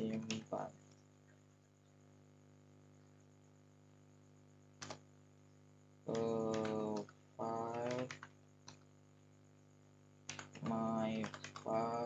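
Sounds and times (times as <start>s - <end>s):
keyboard keystrokes: 0.0s - 0.6s, 4.8s - 5.0s, 6.1s - 8.8s, 10.3s - 11.8s.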